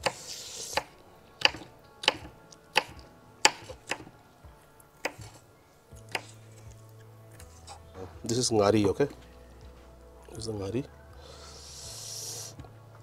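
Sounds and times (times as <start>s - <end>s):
knife chopping on wooden board: 0.0s - 4.1s, 5.0s - 5.4s, 6.1s - 6.4s.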